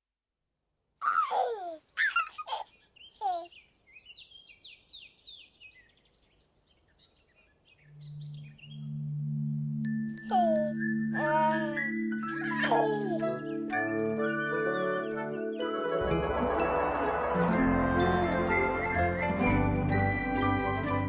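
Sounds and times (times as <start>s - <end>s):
birds calling: 2.0s - 16.1s
low steady musical note: 7.9s - 12.1s, 16.0s - 21.0s.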